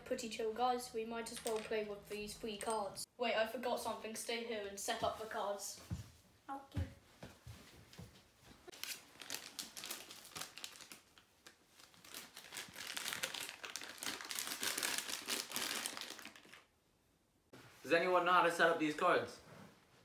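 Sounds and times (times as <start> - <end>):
plastic packets crinkling: 8.7 - 16.7.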